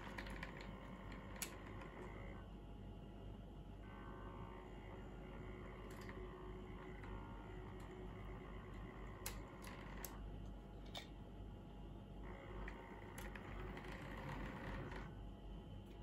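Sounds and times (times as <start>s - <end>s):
small electric motor humming: 3.9s - 10.2s, 12.2s - 15.2s.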